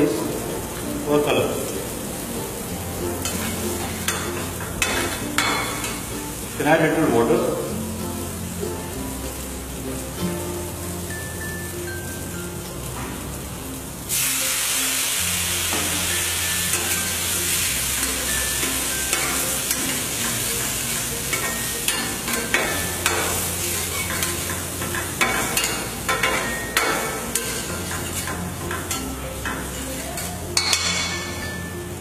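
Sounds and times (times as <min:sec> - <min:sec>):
stuffing sizzling in a pan: 0:00.0 - 0:32.0
spatula tapping a pan: 0:18.6 - 0:31.4.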